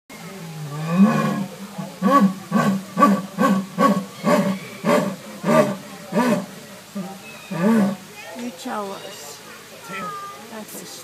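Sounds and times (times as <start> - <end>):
jaguar grunting: 0.6 - 8.0.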